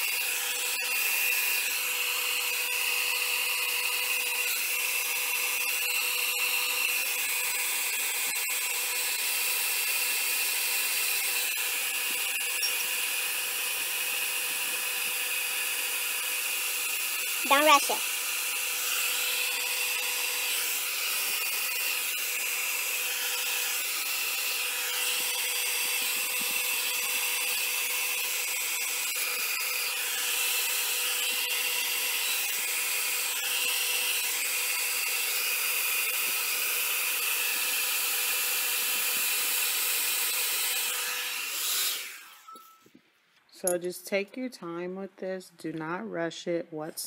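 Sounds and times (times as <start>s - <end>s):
hot-air blower whining: 0.0s - 42.6s.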